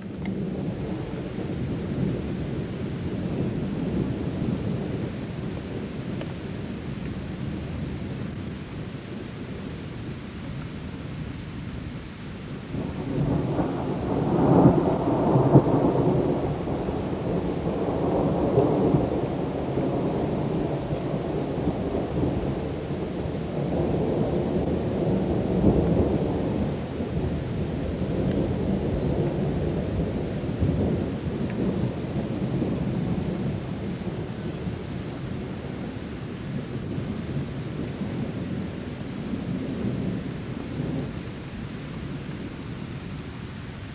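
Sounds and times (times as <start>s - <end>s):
rain hissing: 0.0s - 43.9s
rolling thunder: 12.7s - 42.2s.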